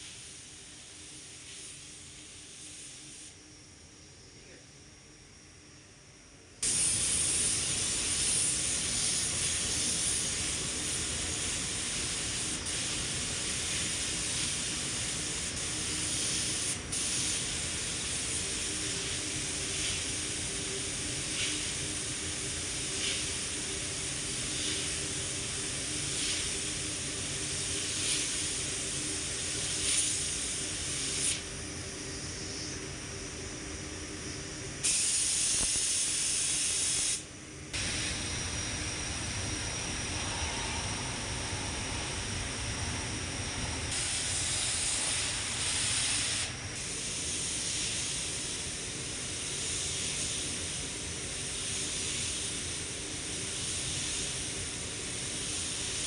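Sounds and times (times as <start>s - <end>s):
paint spray gun hissing: 6.6s - 32.8s, 34.8s - 38.9s, 43.8s - 56.0s.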